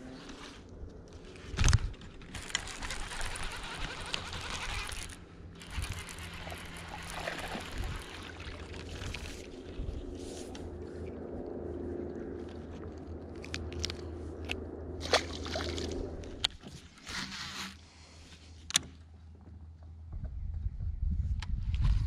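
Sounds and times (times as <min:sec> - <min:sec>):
water splashing: 0:04.9 - 0:09.7, 0:15.0 - 0:16.2.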